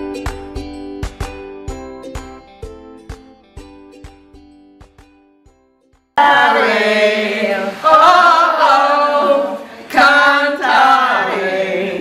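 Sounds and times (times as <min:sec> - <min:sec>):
women singing unaccompanied: 0:06.2 - 0:12.0.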